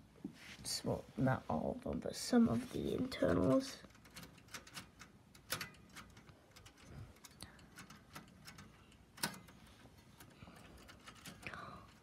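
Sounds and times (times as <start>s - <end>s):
typewriter clicks and ticks: 3.8s - 12.0s.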